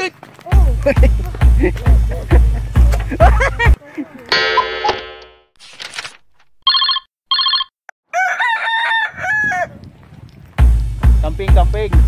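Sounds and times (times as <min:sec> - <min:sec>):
music with bass beat: 0:00.5 - 0:03.8, 0:10.6 - 0:12.0
electronic ringing tones: 0:06.7 - 0:07.7
rooster crowing: 0:08.1 - 0:09.8.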